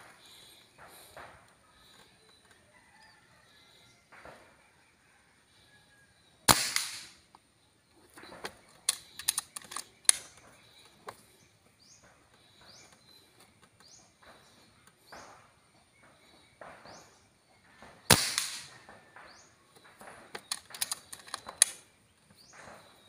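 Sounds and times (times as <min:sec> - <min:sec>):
air rifle shot: 0:06.5 - 0:07.2, 0:18.0 - 0:18.8
rifle handling clicks: 0:08.4 - 0:10.4, 0:18.1 - 0:18.7, 0:20.3 - 0:21.8.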